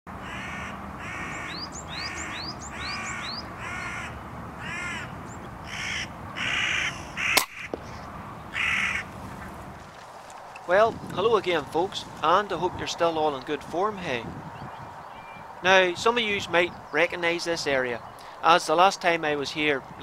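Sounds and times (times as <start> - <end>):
crows cawing: 0.2 - 9.2
sharp crack: 7.3 - 8.1.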